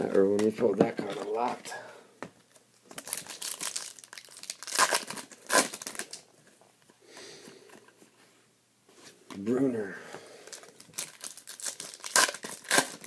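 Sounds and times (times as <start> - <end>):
wrapper crinkling and tearing: 2.9 - 6.3, 10.4 - 13.0.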